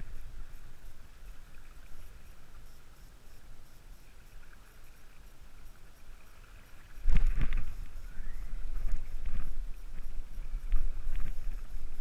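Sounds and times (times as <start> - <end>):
wind rumble on microphone: 0.0 - 2.7, 6.8 - 12.0.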